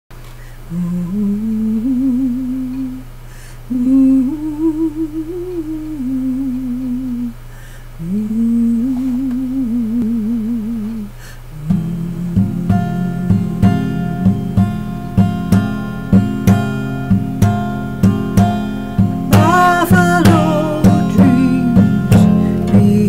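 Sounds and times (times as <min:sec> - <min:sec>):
woman humming a melody: 0:00.7 - 0:03.1, 0:03.7 - 0:07.4, 0:08.0 - 0:15.3, 0:19.2 - 0:23.0
acoustic guitar strumming: 0:11.6 - 0:23.0.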